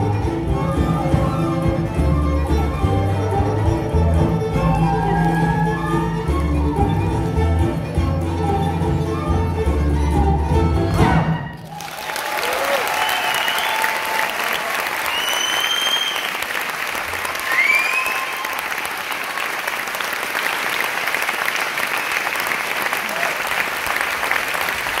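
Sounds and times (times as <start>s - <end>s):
crowd cheering: 0.0s - 7.9s, 10.4s - 25.0s
audience applauding: 3.2s - 7.1s, 10.8s - 25.0s.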